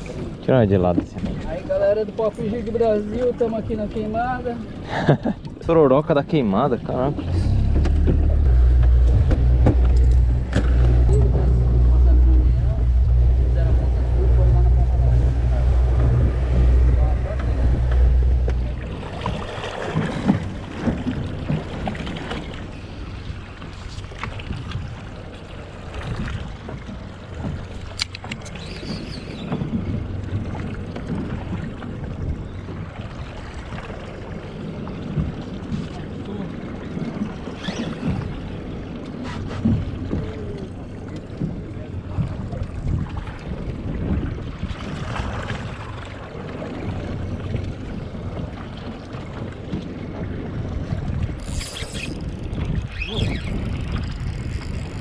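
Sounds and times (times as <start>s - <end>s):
open sea wash: 0.0s - 55.0s
water against boat: 0.0s - 55.0s
wind buffeting microphone: 0.0s - 55.0s
fishing reel clicking and whirring: 51.4s - 55.0s.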